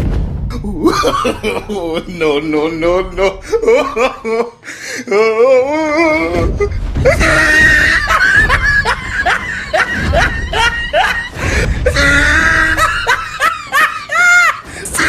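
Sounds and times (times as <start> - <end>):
person laughing in yelps: 0.7 - 2.0, 3.0 - 6.4, 7.1 - 11.3, 11.9 - 14.7.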